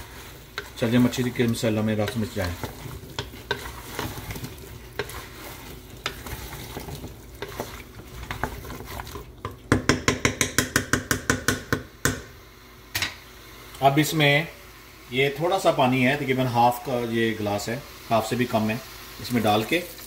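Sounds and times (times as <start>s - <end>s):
spatula scraping a pot: 0.0s - 9.6s
masala sizzling: 0.0s - 20.0s.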